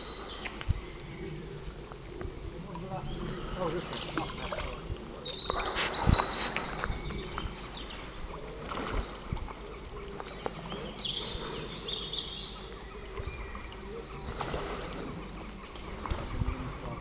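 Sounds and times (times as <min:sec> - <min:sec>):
birds chirping: 0:00.0 - 0:17.0
fish splashing in pond: 0:08.6 - 0:09.6, 0:14.2 - 0:15.1.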